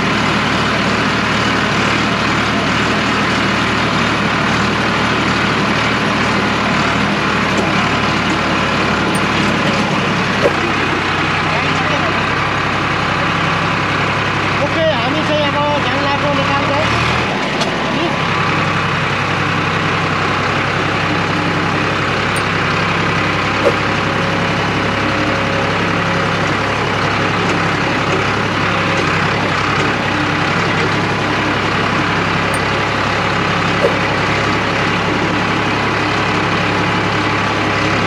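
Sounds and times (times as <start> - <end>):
brief clicks: 10.4 - 10.7, 23.6 - 23.8, 33.8 - 34.0.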